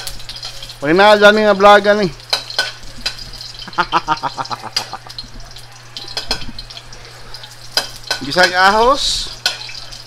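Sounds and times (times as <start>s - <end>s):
garlic sizzling in hot oil: 0.0s - 10.0s.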